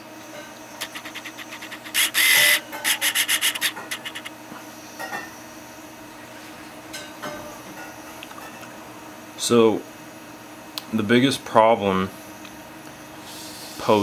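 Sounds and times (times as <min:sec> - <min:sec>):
hands rubbing plastic housing: 0:00.8 - 0:04.3.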